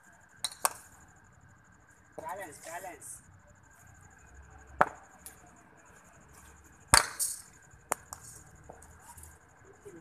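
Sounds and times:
ball bouncing on concrete: 0.4s - 0.8s, 4.8s - 5.4s, 6.8s - 8.9s
cricket bat hitting ball: 6.9s - 7.3s.

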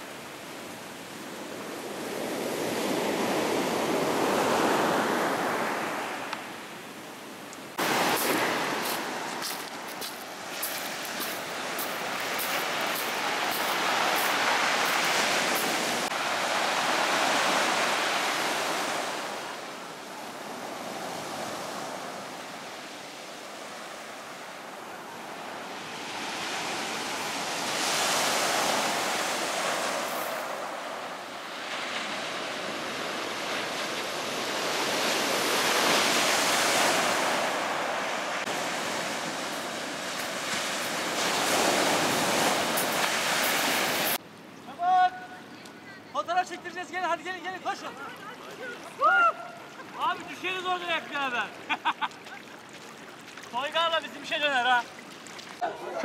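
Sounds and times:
waves breaking on pebble beach: 7.8s - 19.5s, 25.8s - 44.2s.

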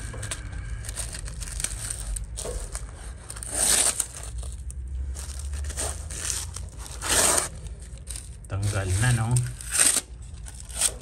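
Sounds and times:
adhesive tape crinkling and tearing: 0.0s - 11.0s
tape ripping off carpet: 3.3s - 4.6s, 5.6s - 11.0s.

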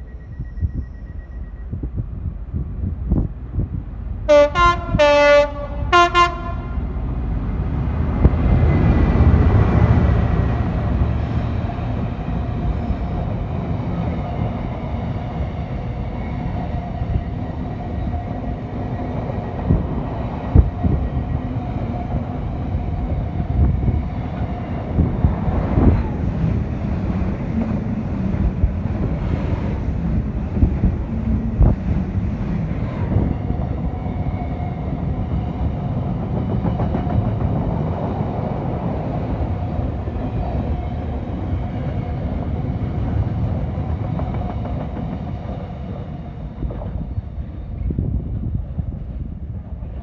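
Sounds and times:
electric passenger train passing: 0.0s - 50.0s
freight train rumbling: 0.0s - 50.0s
locomotive horn blasts: 4.3s - 6.9s.

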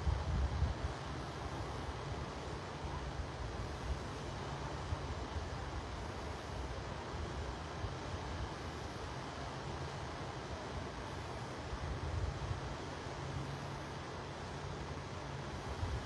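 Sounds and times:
wind on microphone: 0.0s - 1.8s.

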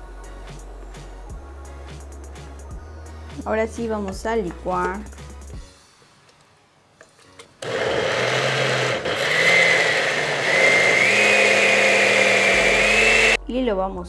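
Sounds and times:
blender motor whine: 7.6s - 13.4s.

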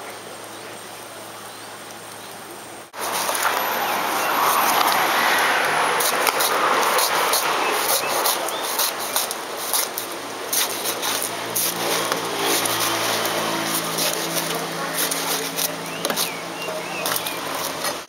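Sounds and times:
steady rushing noise: 2.6s - 18.0s
cleaver chopping on wooden board: 16.0s - 16.4s.

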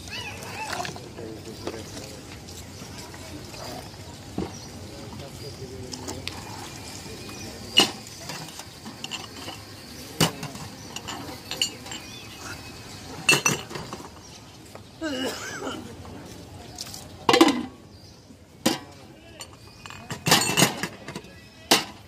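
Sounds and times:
glasses clinking on steel tray: 7.8s - 12.3s, 13.2s - 14.1s, 19.4s - 21.9s.

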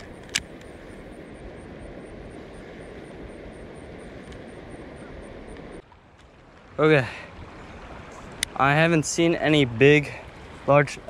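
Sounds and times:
sharp click: 0.0s - 0.7s
river current rushing: 0.0s - 11.0s.

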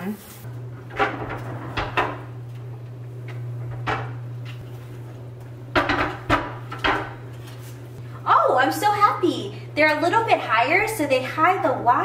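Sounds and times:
drawers knocking on stone countertop: 5.7s - 7.1s.

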